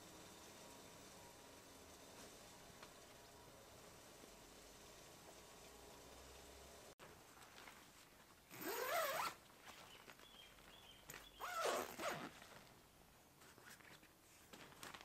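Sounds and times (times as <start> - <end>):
tent door zipper: 8.5 - 9.4, 11.4 - 12.6.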